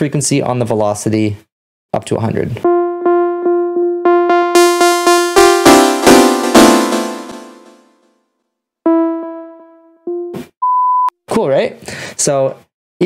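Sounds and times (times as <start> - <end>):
sawtooth synth arpeggio: 2.7 - 8.0, 8.9 - 10.3.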